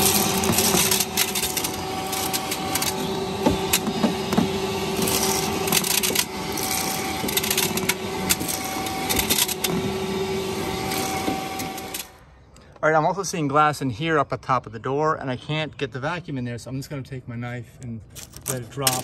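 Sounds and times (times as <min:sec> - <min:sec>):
glass pieces rattling in hose: 0:00.0 - 0:03.9, 0:05.0 - 0:09.8, 0:18.1 - 0:19.0
vacuum cleaner whining: 0:00.0 - 0:12.2.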